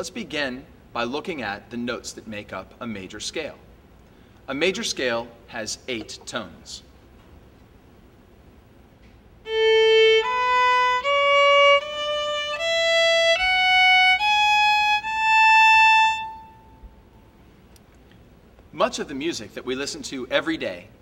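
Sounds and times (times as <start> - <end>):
violin playing a scale: 9.4 - 17.0.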